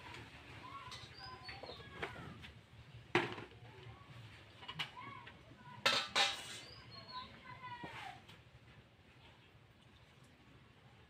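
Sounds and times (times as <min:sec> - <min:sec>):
small birds chirping: 0:00.6 - 0:02.4, 0:06.4 - 0:07.8.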